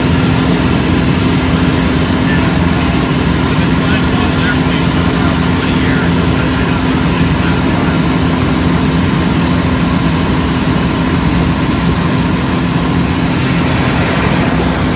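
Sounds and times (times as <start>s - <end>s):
airplane engine droning: 0.0s - 14.9s
rushing air: 12.6s - 14.9s.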